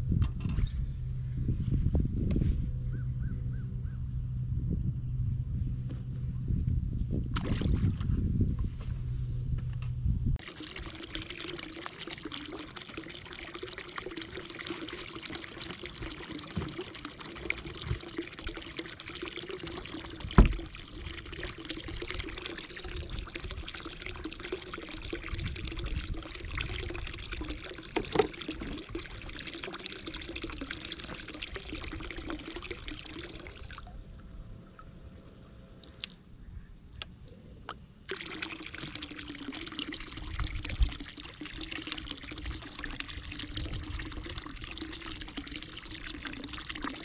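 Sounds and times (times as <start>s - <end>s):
low steady hum: 0.0s - 47.0s
water pouring and trickling: 7.1s - 8.6s, 10.4s - 34.9s, 38.0s - 47.0s.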